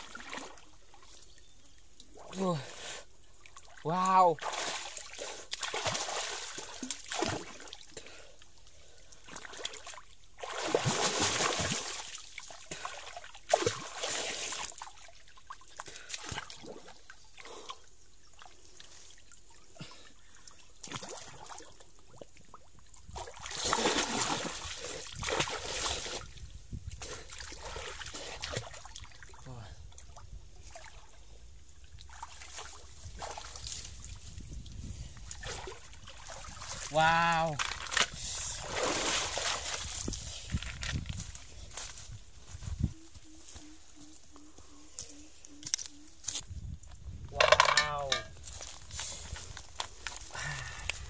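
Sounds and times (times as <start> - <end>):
water splashing from wading: 0.0 - 0.8, 3.4 - 7.9, 9.2 - 16.9, 20.8 - 26.3, 35.3 - 38.0, 38.6 - 39.8.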